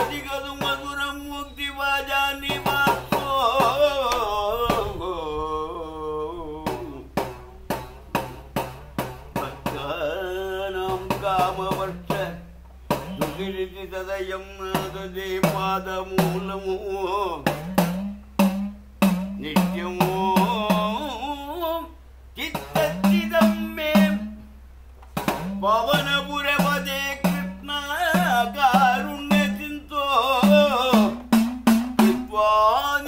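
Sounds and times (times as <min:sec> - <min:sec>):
man singing slow temple song: 0:00.0 - 0:07.4, 0:09.3 - 0:17.6, 0:19.4 - 0:24.4, 0:25.4 - 0:31.3, 0:32.0 - 0:33.0
hand drum beat: 0:02.5 - 0:05.0, 0:06.7 - 0:13.6, 0:17.4 - 0:21.2, 0:22.5 - 0:24.4, 0:25.1 - 0:32.4.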